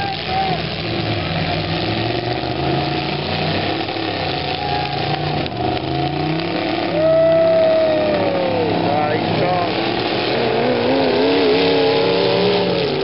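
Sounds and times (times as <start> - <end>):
pickup truck engines revving: 0.0 - 13.0.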